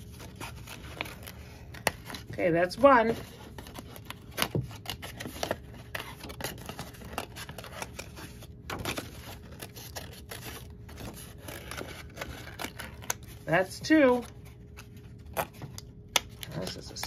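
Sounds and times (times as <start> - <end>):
scissors snipping paper: 15.4 - 17.0.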